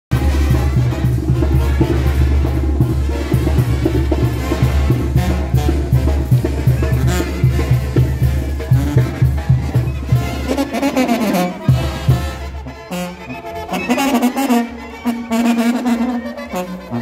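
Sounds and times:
music with drums and heavy bass: 0.1 - 12.8.

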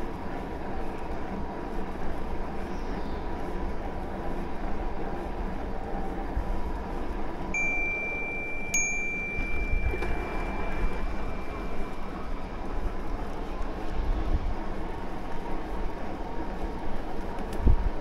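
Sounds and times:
low rumble of wind and riding: 0.0 - 18.0
bicycle bell ringing: 7.6 - 11.6.

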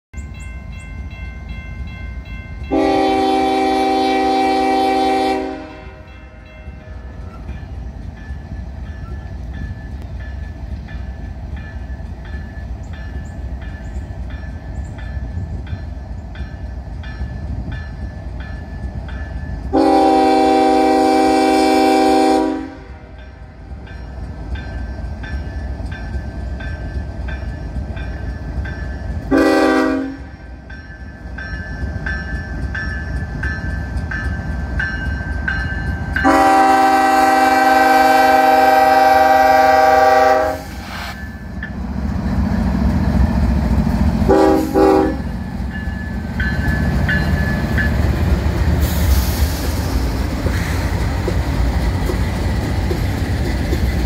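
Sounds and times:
crossing bell ringing: 0.2 - 38.1, 41.2 - 48.7
train rumble: 0.2 - 54.0
locomotive air horn blasts: 2.7 - 6.2, 19.7 - 23.2, 29.3 - 30.4, 36.2 - 41.2, 44.3 - 45.3.

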